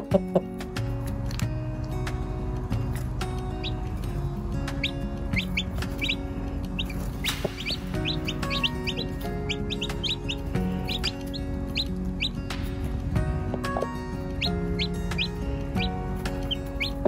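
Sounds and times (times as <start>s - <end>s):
background music with held notes: 0.0s - 17.0s
chicks peeping: 3.6s - 12.6s, 13.5s - 17.0s.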